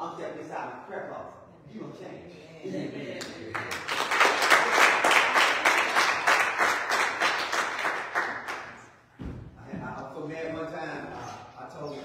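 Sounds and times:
congregation clapping: 3.2 - 9.0.

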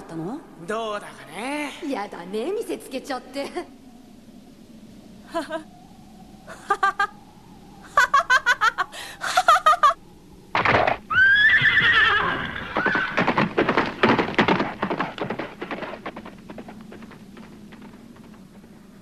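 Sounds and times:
horse whinnying: 11.1 - 13.8
galloping hoofbeats: 11.6 - 19.0.

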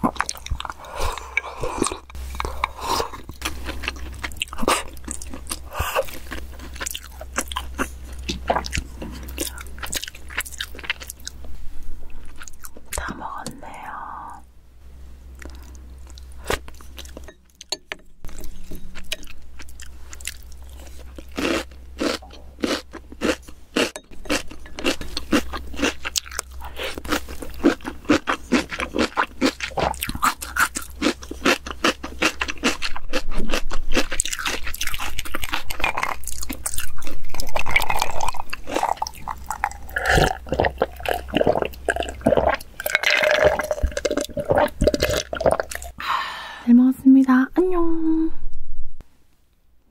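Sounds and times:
crunchy chewing: 0.0 - 11.5, 15.3 - 46.0
gulping a drink: 37.7 - 46.0.

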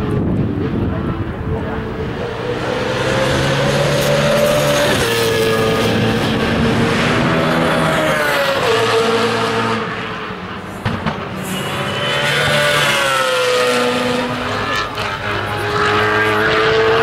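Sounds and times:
race car engine at high revs: 0.0 - 17.0.

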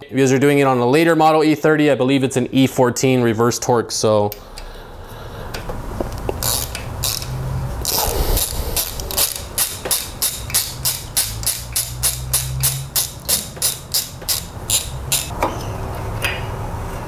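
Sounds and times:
ratchet wrench clicking: 6.3 - 15.3.

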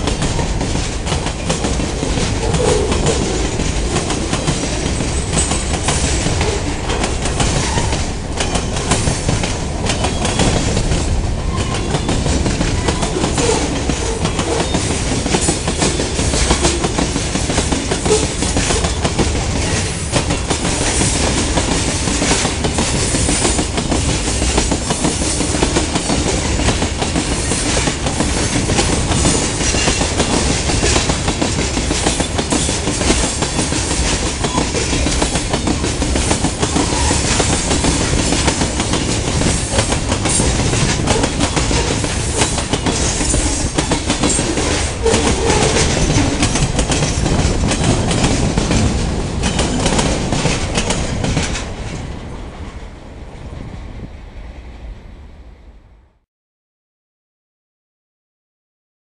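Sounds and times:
steel wheels clicking on rail: 0.0 - 52.7
freight train rolling past: 0.0 - 56.2.

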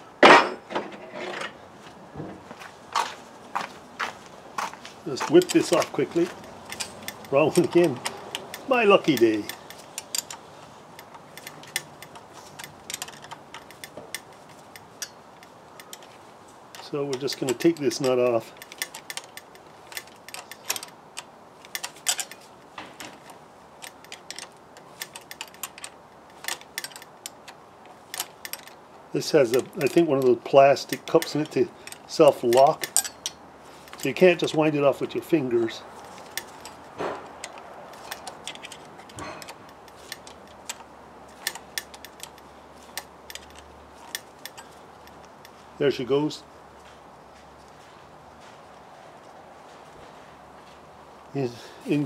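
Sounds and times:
spanner clicking on nut: 5.2 - 16.1, 16.7 - 35.3, 36.0 - 45.6.

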